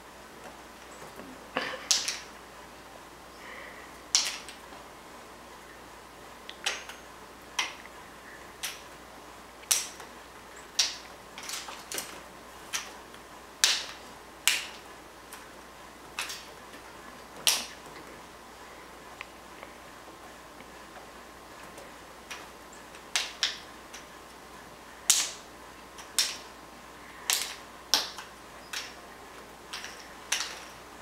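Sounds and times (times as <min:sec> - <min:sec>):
sharp clicks: 0:08.6 - 0:08.9.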